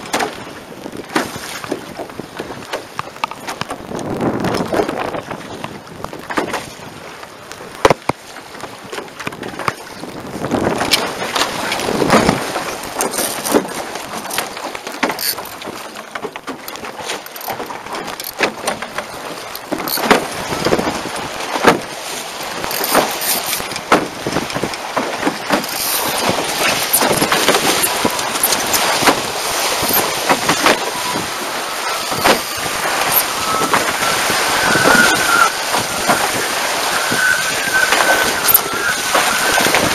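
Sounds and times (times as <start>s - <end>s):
wind buffeting microphone: 0.0s - 16.0s, 17.3s - 39.9s
water rushing along boat hulls: 0.0s - 39.9s.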